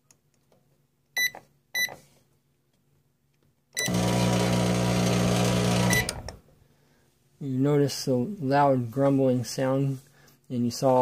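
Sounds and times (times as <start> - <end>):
microwave keypad beeps: 1.2 - 2.0, 3.8 - 4.0, 5.8 - 6.2.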